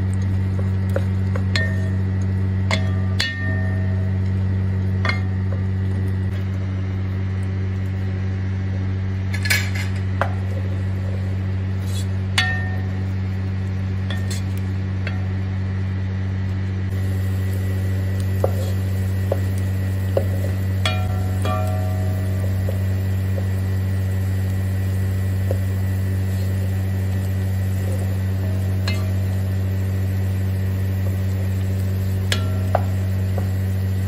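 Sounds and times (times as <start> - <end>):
steady low hum: 0.0 - 34.0
wooden spoon scraping metal pot: 11.8 - 12.2.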